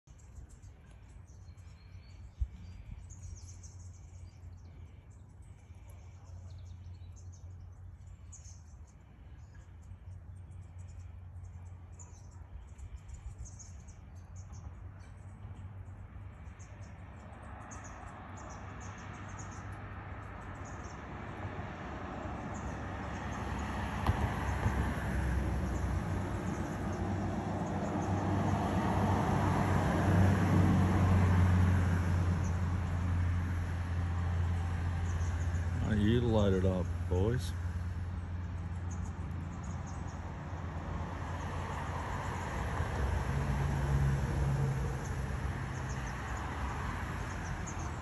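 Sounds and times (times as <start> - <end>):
birds chirping: 0.0 - 21.3, 22.3 - 29.4, 31.9 - 40.4, 45.0 - 48.0.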